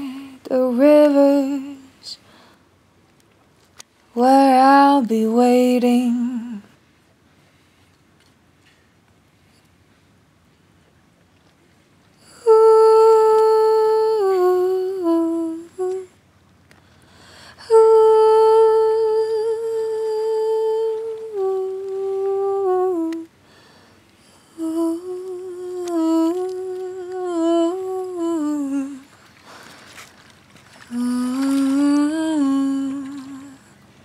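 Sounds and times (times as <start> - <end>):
person humming a melody: 0.0 - 2.2, 12.2 - 16.1, 17.6 - 23.3, 24.3 - 29.1, 30.9 - 33.7.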